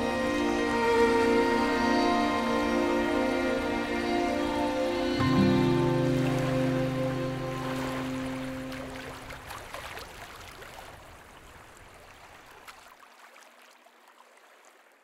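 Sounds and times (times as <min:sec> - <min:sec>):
music track: 0:00.0 - 0:09.4
water lapping and splashing: 0:00.2 - 0:15.0.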